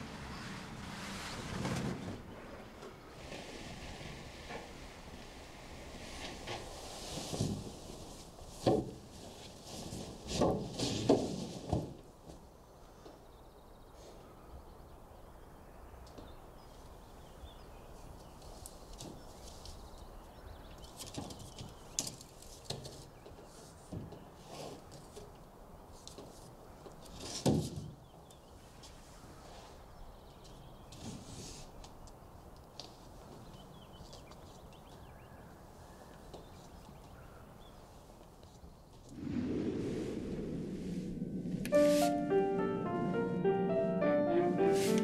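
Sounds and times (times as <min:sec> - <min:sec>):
music: 0:41.7 - 0:45.0.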